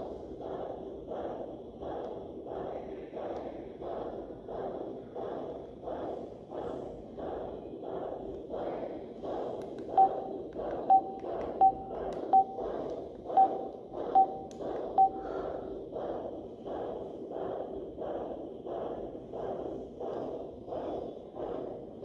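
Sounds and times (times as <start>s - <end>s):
short sharp beeps: 10.9s - 12.6s.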